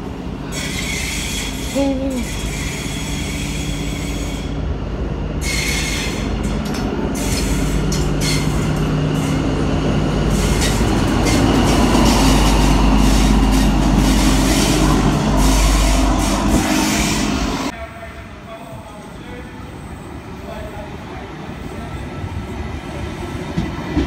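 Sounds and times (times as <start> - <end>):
diesel locomotive hum: 0.0 - 20.2
train wheels squealing and clicking: 0.5 - 4.6, 5.4 - 9.6, 10.2 - 14.9.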